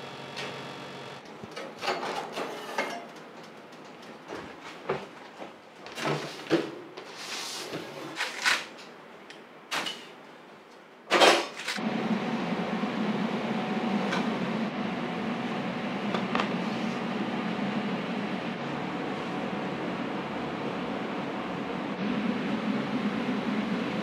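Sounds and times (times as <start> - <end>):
trays and utensils clattering: 1.4 - 4.2, 11.1 - 11.8
machine hum with faint hiss: 11.8 - 24.0.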